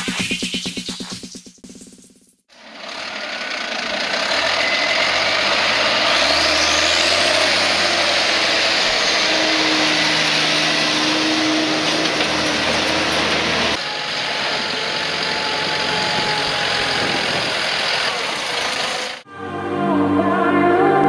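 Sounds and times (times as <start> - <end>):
tractor diesel engine revving: 2.5 - 19.3.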